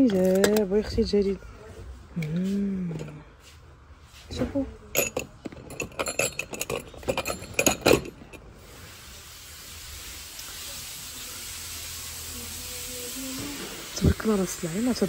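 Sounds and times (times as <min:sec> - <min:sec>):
glass jar and lid clinking: 0:04.9 - 0:08.4
steady hiss: 0:08.4 - 0:15.0.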